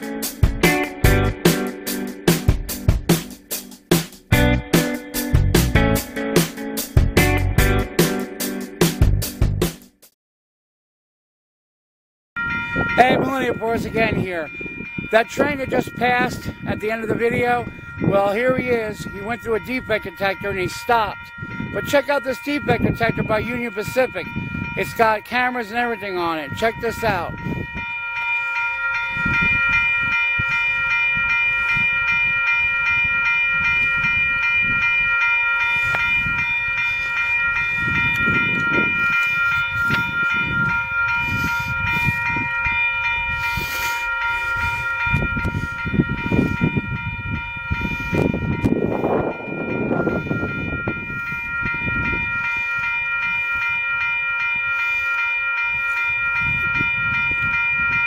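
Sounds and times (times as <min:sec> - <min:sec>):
railroad crossing bell ringing: 0:00.0 - 0:05.4, 0:12.4 - 0:58.0
wind rumble on microphone: 0:12.4 - 0:25.3, 0:26.4 - 0:28.0, 0:29.0 - 0:54.8, 0:55.7 - 0:58.0.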